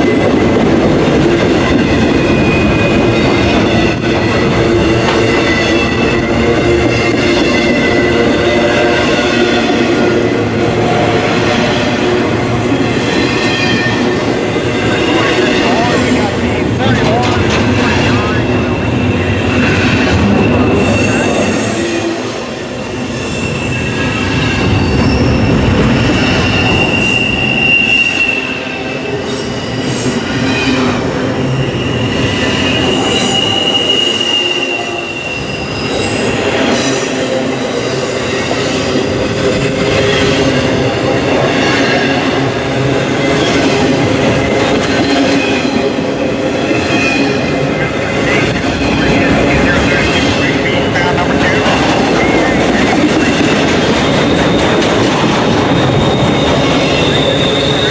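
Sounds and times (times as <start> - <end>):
train wheels rumbling on track: 0.0 - 57.9
high-pitched wheel squeal: 19.6 - 36.9, 55.7 - 57.9.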